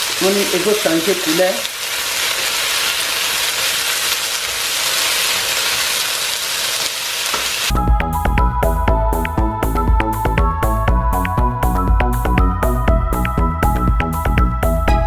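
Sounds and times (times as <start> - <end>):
beef sizzling in a wok: 0.0 - 7.8
electronic music: 7.7 - 15.0.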